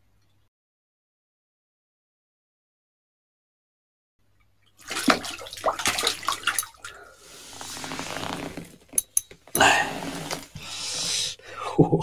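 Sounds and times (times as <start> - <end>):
fish thrashing and splashing water: 4.7 - 8.7.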